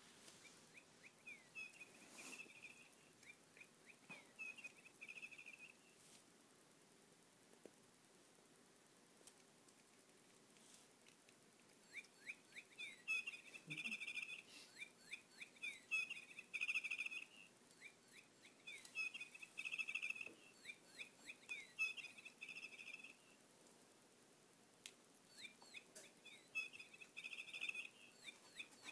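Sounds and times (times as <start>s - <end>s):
bird-like chirping with trill: 0.4s - 6.0s, 11.8s - 23.4s, 25.3s - 28.9s.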